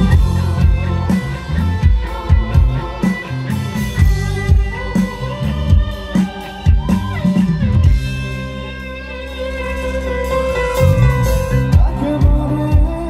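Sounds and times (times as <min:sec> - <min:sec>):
drum beat: 0:00.0 - 0:08.4
sustained instrument notes: 0:06.7 - 0:12.5.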